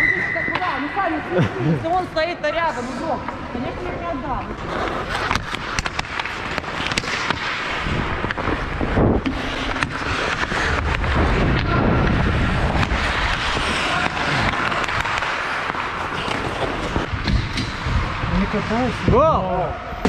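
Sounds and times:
skate blades scraping ice: 2.8 - 19.1
stick clicking on puck: 4.6 - 11.7.

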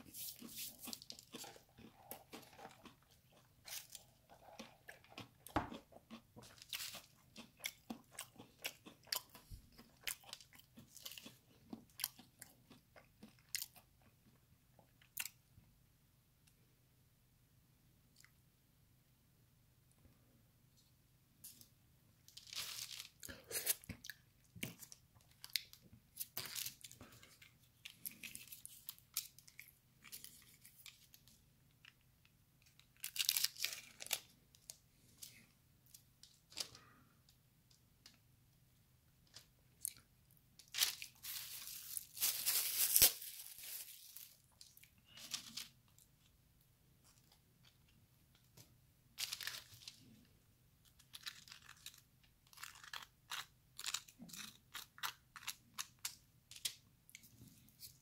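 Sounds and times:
crunchy chewing: 0.1 - 13.8
crispy chicken crackling and tearing: 32.6 - 34.3, 40.6 - 45.8, 50.8 - 56.8.

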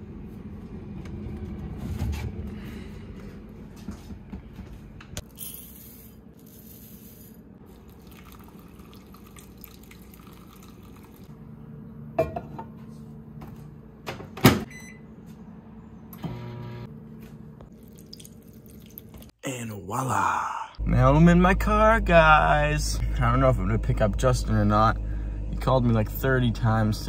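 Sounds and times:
steady low hum: 0.0 - 19.3, 20.1 - 27.0.

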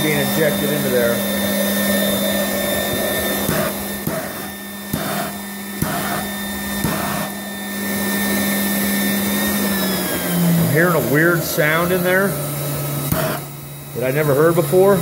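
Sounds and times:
steady hum: 0.0 - 15.0
steam and gas rushing: 0.0 - 15.0.

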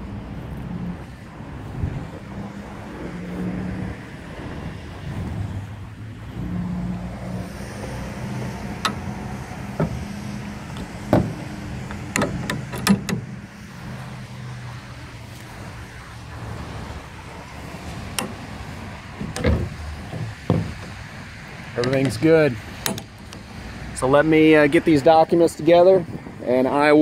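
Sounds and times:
metal clamp levers clacking: 8.8 - 9.2, 11.8 - 13.4, 18.1 - 18.4, 21.8 - 22.2, 22.8 - 23.1.

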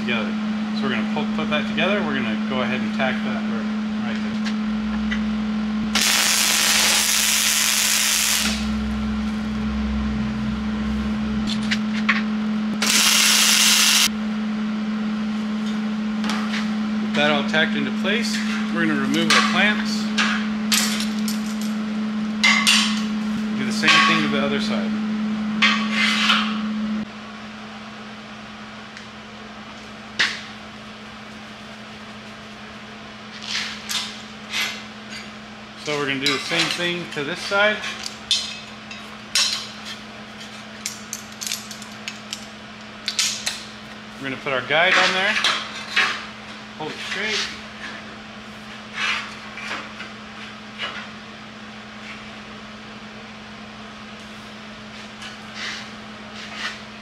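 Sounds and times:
electrical hum: 0.0 - 57.0
welding arc hiss: 5.9 - 8.7, 12.8 - 14.1.

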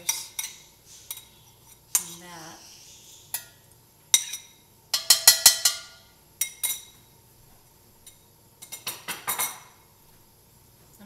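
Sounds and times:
metal utensil clinking on ceramic bowl: 4.2 - 7.0.

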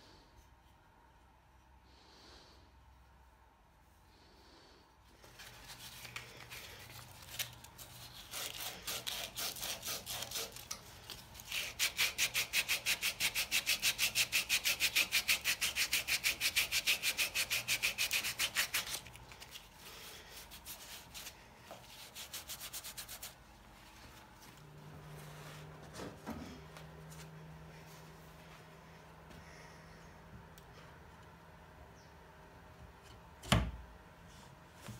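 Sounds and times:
hand-sanding wood: 8.0 - 10.6, 11.4 - 19.1, 20.4 - 23.4
low steady hum: 16.6 - 34.9.

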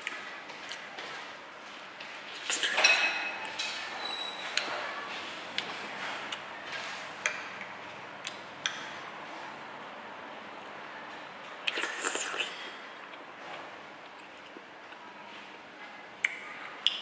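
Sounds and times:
utensils clinking against dish: 2.5 - 5.0.

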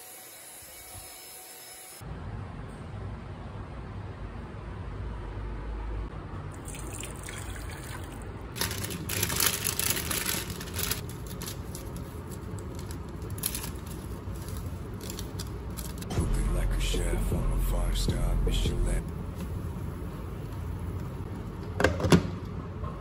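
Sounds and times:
crackly packet rustling: 8.6 - 16.0
seasoning packet shaken: 8.6 - 16.0.

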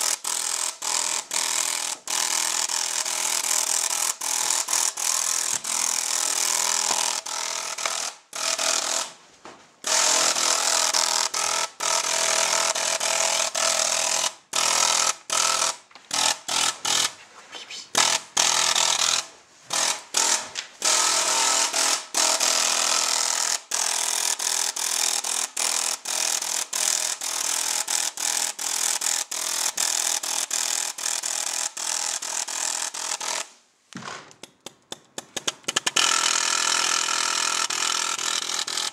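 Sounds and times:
paintball marker rapid firing: 32.5 - 38.9.

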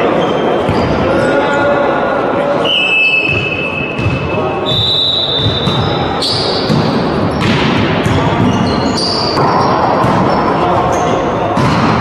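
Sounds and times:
shoe squeaks: 0.0 - 1.1, 2.7 - 11.4
busy hall din: 0.0 - 12.0
volleyball strikes: 3.3 - 12.0.

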